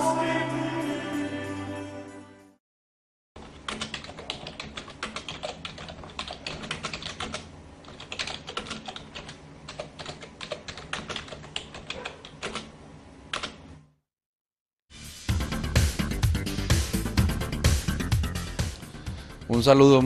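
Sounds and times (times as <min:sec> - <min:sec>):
keyboard typing: 0:03.4 - 0:13.7.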